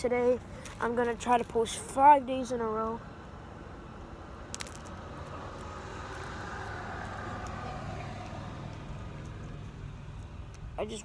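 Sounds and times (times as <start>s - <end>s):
vehicle passing: 3.0s - 11.0s.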